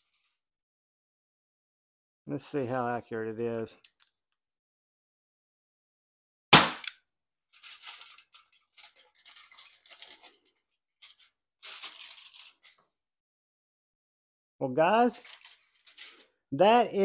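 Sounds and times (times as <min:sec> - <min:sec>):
salt gun shot crack: 0:06.6 - 0:06.9
aluminum foil crinkling: 0:07.6 - 0:12.9, 0:15.2 - 0:16.3.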